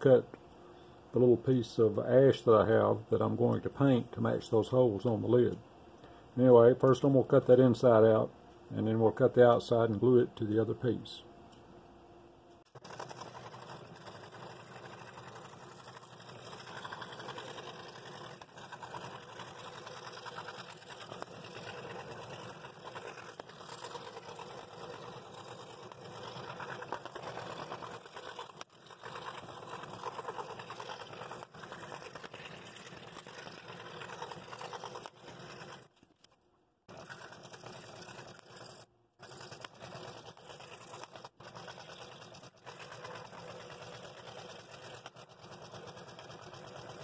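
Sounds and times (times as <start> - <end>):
scroll saw cutting wood: 12.7 - 47.0.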